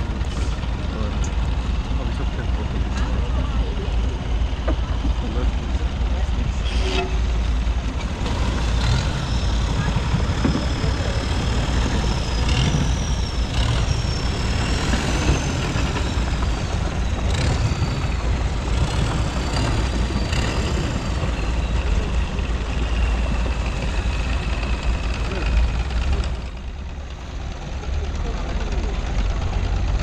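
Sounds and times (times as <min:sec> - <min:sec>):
boat engine rumbling: 0:00.0 - 0:30.0
propeller churning water: 0:00.0 - 0:30.0
high whine: 0:06.4 - 0:07.6.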